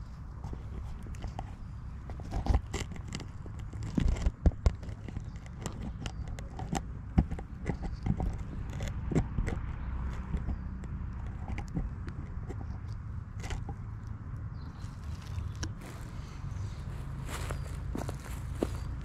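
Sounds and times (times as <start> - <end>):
footsteps crunching leaves and twigs: 14.7 - 19.0.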